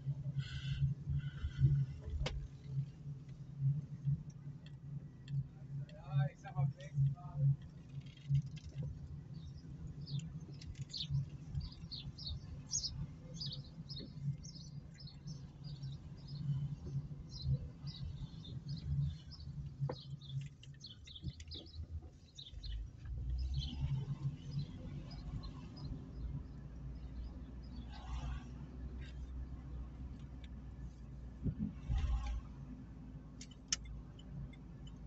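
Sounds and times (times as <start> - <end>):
car engine and tyres humming: 0.0 - 35.0
birds chirping: 8.2 - 28.0.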